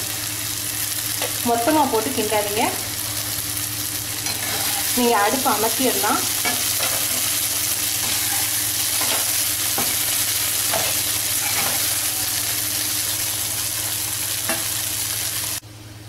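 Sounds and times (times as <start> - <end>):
spoons scraping a pan: 4.3 - 5.0, 8.0 - 10.0, 10.7 - 12.1.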